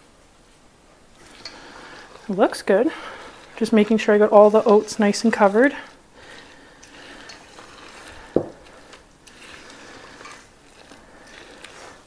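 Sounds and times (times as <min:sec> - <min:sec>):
utensil scraping steel bowl: 0:01.2 - 0:12.0.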